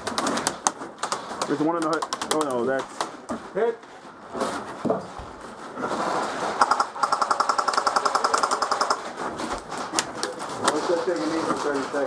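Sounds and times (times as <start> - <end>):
airsoft rifle rapid fire rattle: 0.0 - 3.2, 6.6 - 11.9.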